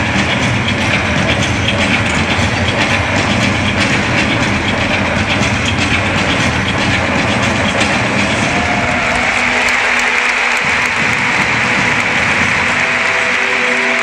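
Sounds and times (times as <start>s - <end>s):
crowd noise: 0.0s - 14.0s
show music with low bass: 0.0s - 14.0s
audience applause: 8.2s - 14.0s.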